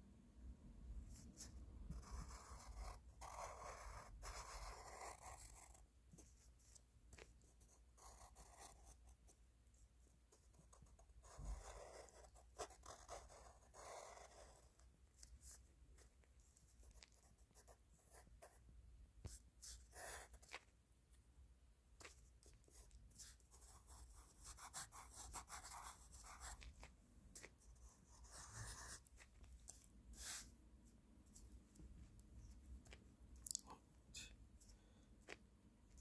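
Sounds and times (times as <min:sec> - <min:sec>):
pencil scratching on paper: 0:01.1 - 0:18.6, 0:19.2 - 0:20.7, 0:22.0 - 0:30.6.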